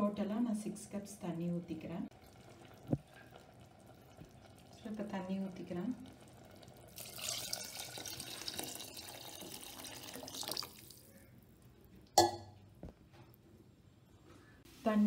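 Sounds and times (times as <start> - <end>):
water pouring into a pot: 2.1 - 11.1.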